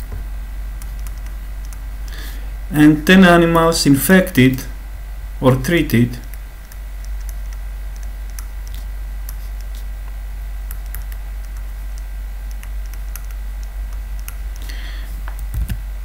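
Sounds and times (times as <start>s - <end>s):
steady low hum: 0.0s - 16.0s
stylus tapping and scratching on tablet: 0.8s - 1.9s, 6.3s - 14.6s.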